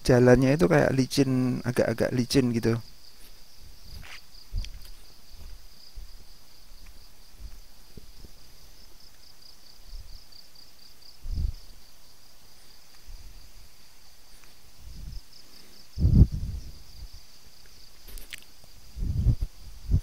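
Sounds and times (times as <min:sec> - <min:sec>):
insects chirring: 0:00.0 - 0:20.0
footsteps on a path: 0:03.1 - 0:08.5.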